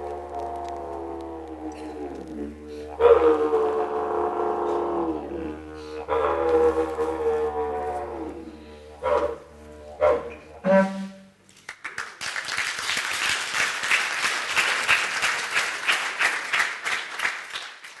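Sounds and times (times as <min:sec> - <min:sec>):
audience applause: 0:11.7 - 0:18.0.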